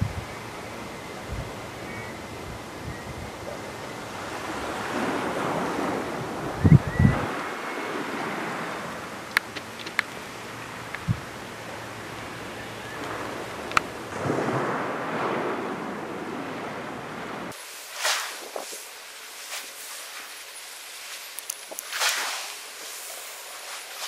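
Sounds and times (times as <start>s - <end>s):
wind buffeting microphone: 0.0s - 17.6s
small waves washing on shingle: 3.5s - 6.6s, 7.2s - 12.4s, 13.0s - 24.0s
sharp clicks: 9.3s - 10.2s.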